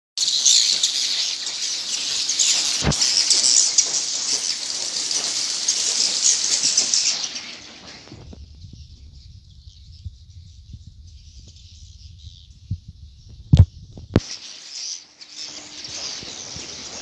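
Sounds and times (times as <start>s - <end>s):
swiftlets chattering: 0.2s - 8.2s.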